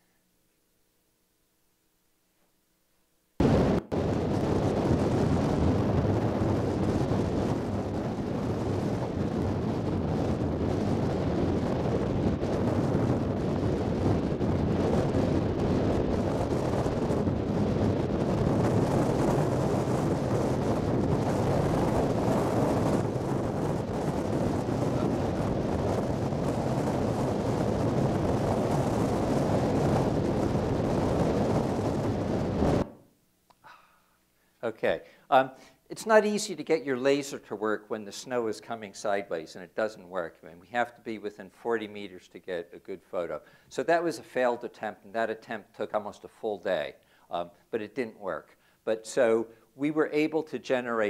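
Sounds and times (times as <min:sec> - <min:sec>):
wind buffeting microphone: 0:03.4 - 0:32.9.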